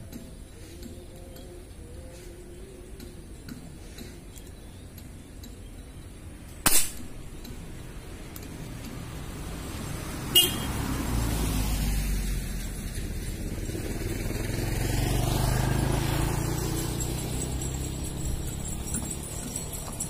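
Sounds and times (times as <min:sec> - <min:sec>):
rushing background noise: 0:00.0 - 0:20.0
air rifle firing: 0:06.6 - 0:07.2
sharp click: 0:06.6 - 0:07.6.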